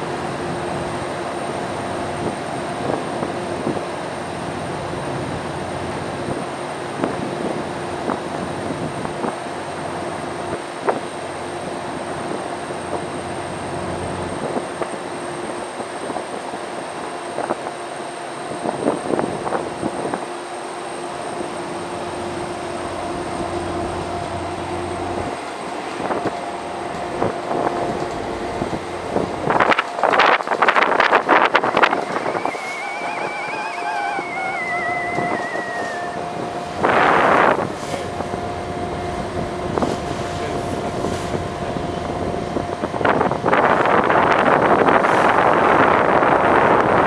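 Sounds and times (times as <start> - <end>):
ferry engines droning: 19.6 - 47.0
rushing noise: 29.3 - 37.8
faint high whine: 30.6 - 37.7.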